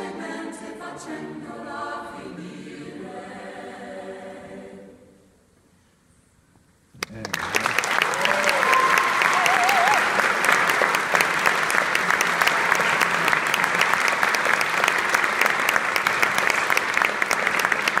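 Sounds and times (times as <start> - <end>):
audience applauding: 7.0 - 18.0.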